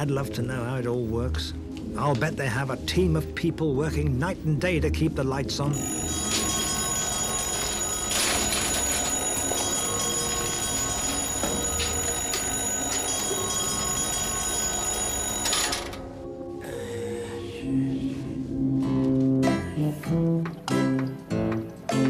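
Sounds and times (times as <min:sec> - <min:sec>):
bell-like ringing: 0:05.8 - 0:15.8.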